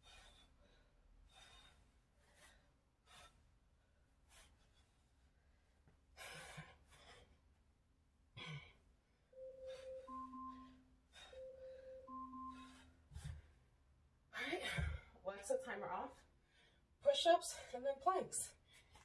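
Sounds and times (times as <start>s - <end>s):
electronic timer alarm tone: 9.3s - 13.1s.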